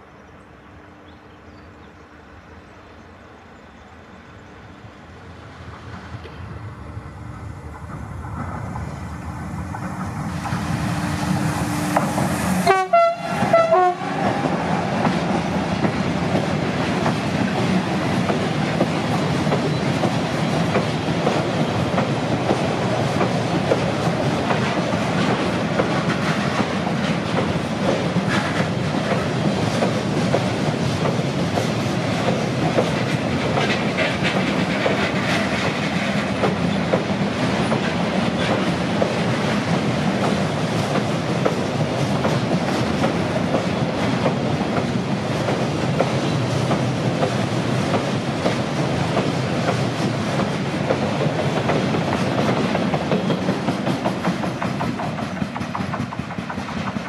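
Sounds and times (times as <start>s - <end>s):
electric locomotive approaching: 0.0s - 57.0s
train horn: 10.9s - 14.9s.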